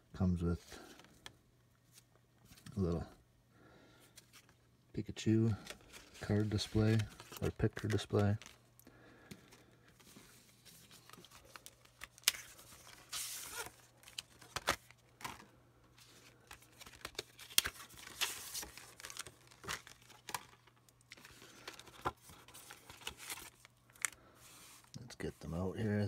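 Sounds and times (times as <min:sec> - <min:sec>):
packaging crinkling and clicking: 0:11.1 - 0:15.5, 0:16.4 - 0:24.2.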